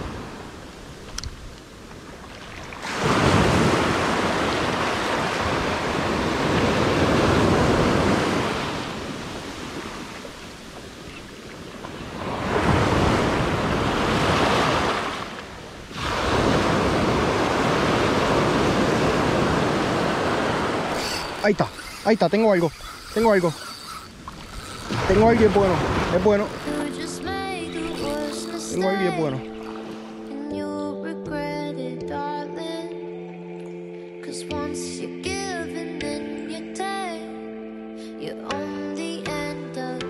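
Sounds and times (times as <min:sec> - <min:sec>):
surf washing up beach: 0:00.0 - 0:30.4
wind on microphone: 0:02.8 - 0:26.8.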